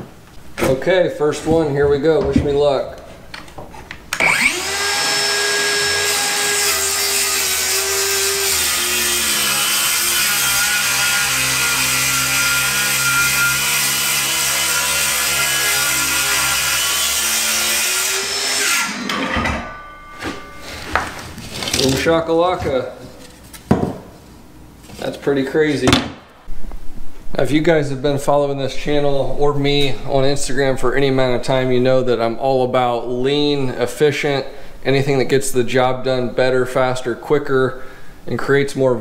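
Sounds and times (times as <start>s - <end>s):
saw blade spinning down: 4.2s - 8.5s, 17.5s - 20.6s
circular saw cutting wood: 4.2s - 20.7s.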